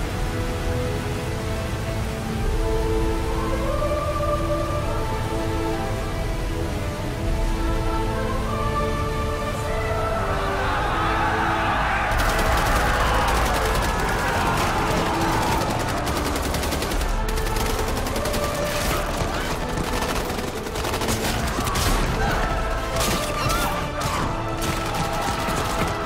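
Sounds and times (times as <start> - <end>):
film score music: 0.0 - 26.0
rapid gunfire: 12.1 - 26.0.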